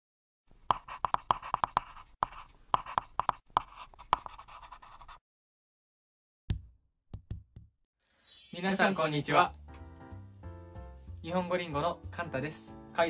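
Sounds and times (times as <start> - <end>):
pen scratching on paper: 0.6 - 5.2
pen tapping: 0.7 - 4.8.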